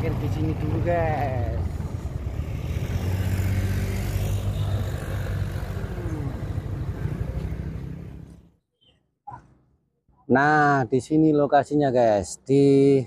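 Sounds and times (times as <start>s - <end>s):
vehicle engine rumbling: 0.0s - 8.6s.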